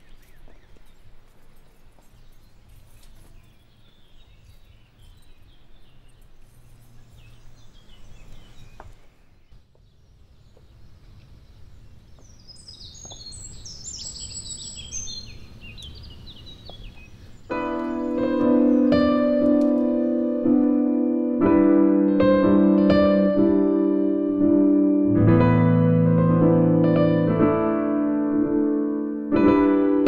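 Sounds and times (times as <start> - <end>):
bird singing falling notes: 0.0 - 21.1
songbirds chirping: 0.0 - 25.2.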